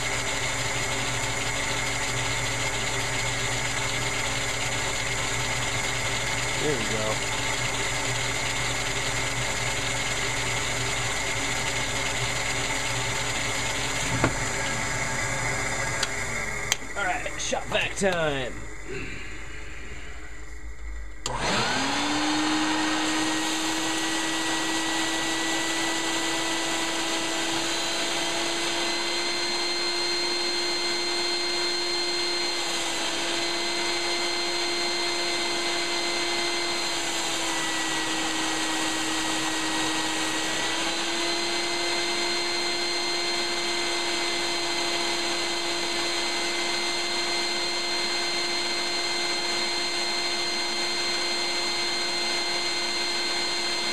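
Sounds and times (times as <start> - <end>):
shop vacuum motor whine: 0.0 - 53.9.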